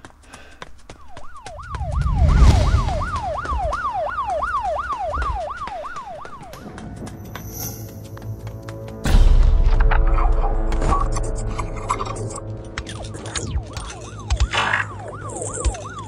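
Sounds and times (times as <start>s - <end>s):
siren yelping: 0.9s - 6.6s, 13.0s - 16.0s
low rumble: 1.6s - 4.5s.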